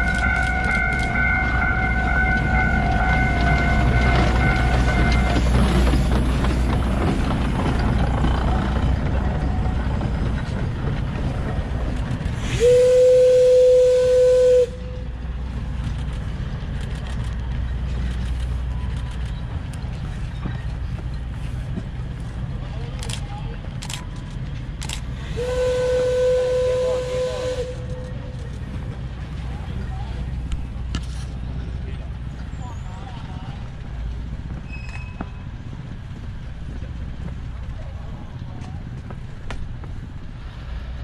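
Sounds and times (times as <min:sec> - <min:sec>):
steam locomotive running: 0:00.0 - 0:41.0
steam whistle blast: 0:12.5 - 0:14.9, 0:25.3 - 0:27.9.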